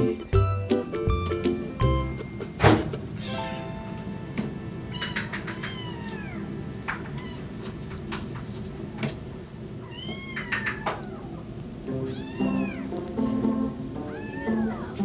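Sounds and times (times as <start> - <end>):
kittens mewing: 4.9 - 7.8, 9.8 - 13.4, 14.0 - 15.0.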